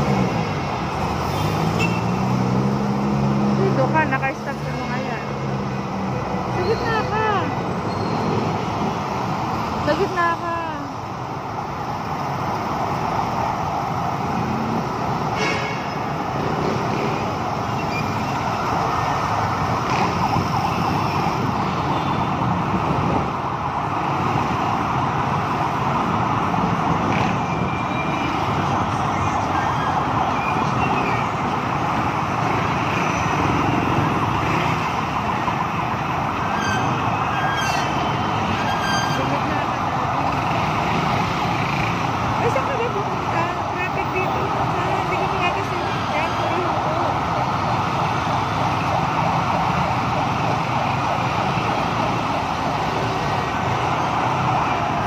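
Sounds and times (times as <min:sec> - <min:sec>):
slow city traffic rumble: 0:00.0 - 0:55.0
emergency siren wailing: 0:16.0 - 0:55.0.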